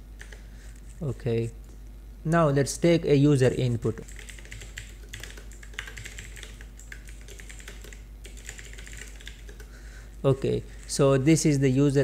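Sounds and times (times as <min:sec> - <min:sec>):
typing on computer keyboard: 0:00.2 - 0:00.4, 0:04.0 - 0:09.7.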